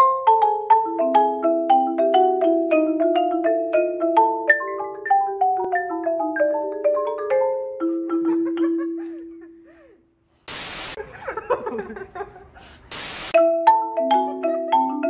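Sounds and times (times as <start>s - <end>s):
marimba playing: 0.0s - 9.6s, 13.3s - 15.0s
static hiss bursts: 10.5s - 11.0s, 12.9s - 13.4s.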